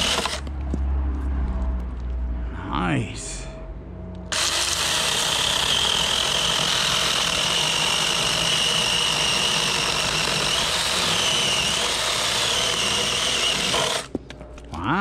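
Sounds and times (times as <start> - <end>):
chainsaw rasping through log: 0.0 - 0.4, 4.3 - 14.1
mini chainsaw whine: 0.0 - 0.5, 4.3 - 14.1.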